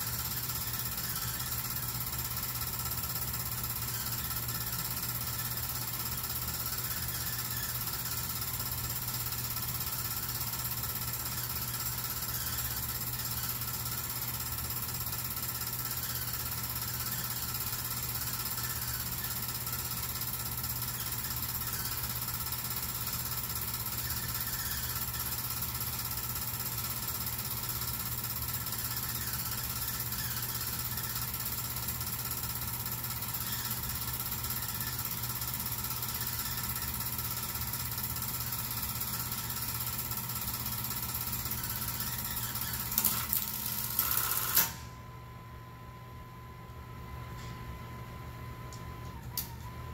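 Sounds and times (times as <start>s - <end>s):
film projector clattering: 0.0s - 44.8s.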